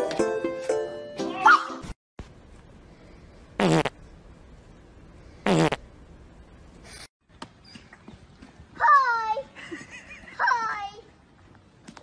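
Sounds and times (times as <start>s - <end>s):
fart noises: 3.6s - 4.0s, 5.4s - 5.8s.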